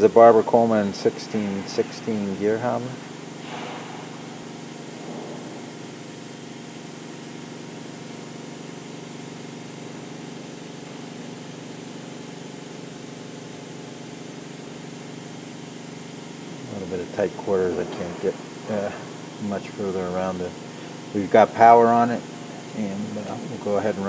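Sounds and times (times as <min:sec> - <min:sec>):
electric machinery hum: 0:00.0 - 0:24.0.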